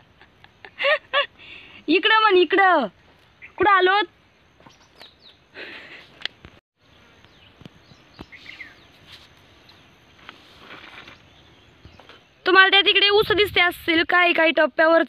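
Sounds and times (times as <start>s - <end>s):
bird chirps: 3.2s - 4.0s, 4.6s - 6.0s, 6.9s - 9.9s.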